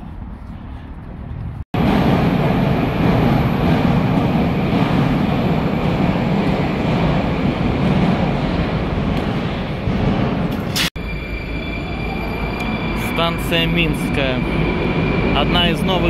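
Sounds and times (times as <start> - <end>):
train wheels rumbling on rails: 1.3 - 10.9.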